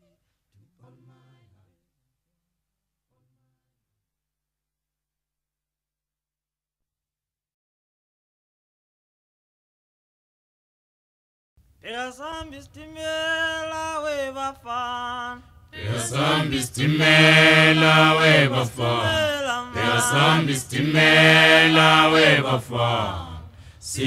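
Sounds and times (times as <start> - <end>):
group of voices singing: 15.8 - 24.0
person singing: 18.2 - 23.4.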